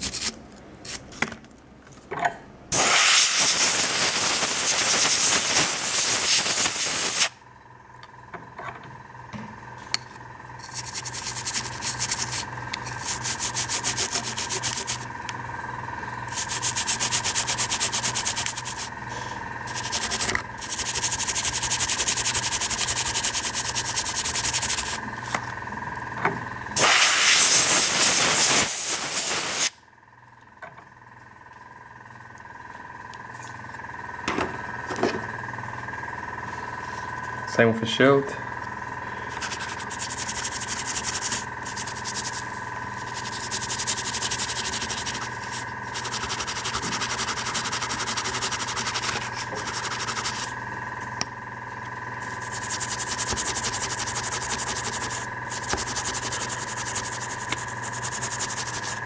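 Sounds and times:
faint steady whine: 0.0 - 59.0
airbrush air hiss: 2.7 - 7.4, 26.8 - 29.8
toothbrush scrubbing plastic: 10.6 - 15.1, 16.3 - 18.9, 19.7 - 25.0, 39.3 - 50.5, 52.2 - 59.0.

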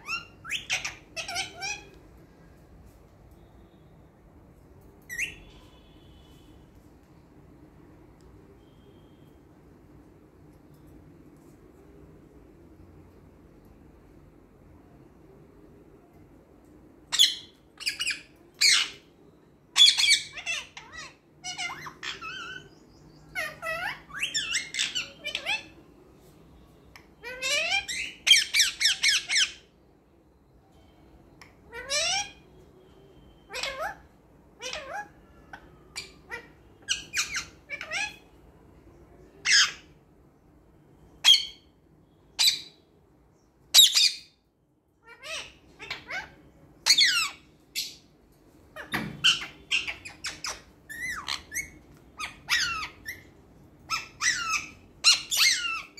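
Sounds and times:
parakeet squawking and chirping: 0.0 - 2.1, 5.1 - 6.5, 17.1 - 25.9, 27.0 - 29.8, 31.4 - 38.5, 39.2 - 40.0, 41.1 - 42.9, 43.7 - 55.9.

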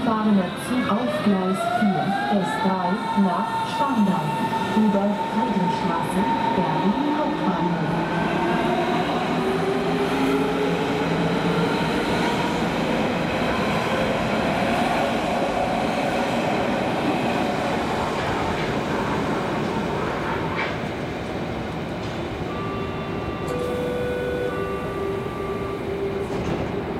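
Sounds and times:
train wheels rumbling on rails: 3.7 - 22.8, 25.2 - 26.9.

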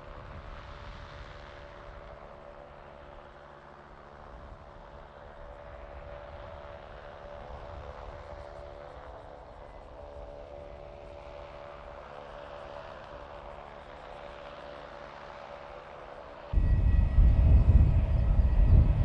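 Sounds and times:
aircraft machine hum: 0.0 - 19.0
low rumble: 16.6 - 19.0.

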